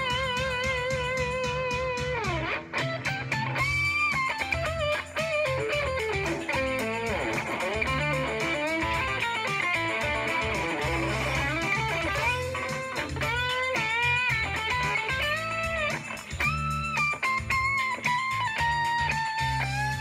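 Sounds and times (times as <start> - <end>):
bass: 0.0 - 20.0
electric guitar lead melody: 0.0 - 20.0
steady ticking beat: 0.0 - 20.0.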